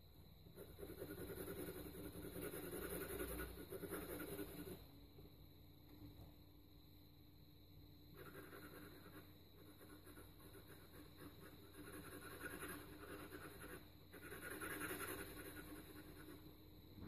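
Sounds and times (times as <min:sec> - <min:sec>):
pencil scratching on paper: 0:00.4 - 0:04.9, 0:08.1 - 0:16.6.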